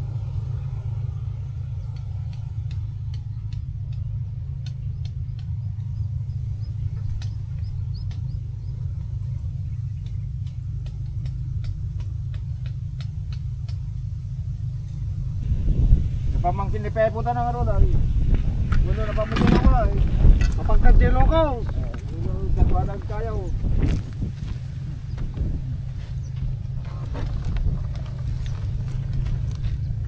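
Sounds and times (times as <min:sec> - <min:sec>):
wind rumble on microphone: 0:00.0 - 0:30.0
faint high ticks: 0:06.6 - 0:09.1, 0:09.8 - 0:14.1.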